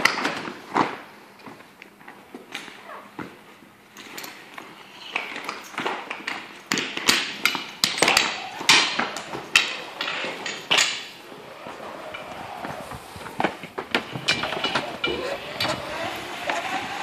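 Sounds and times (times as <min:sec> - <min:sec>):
hose couplings rattling on concrete: 0:03.9 - 0:17.0
boots and gear knocking and clanking: 0:05.2 - 0:17.0.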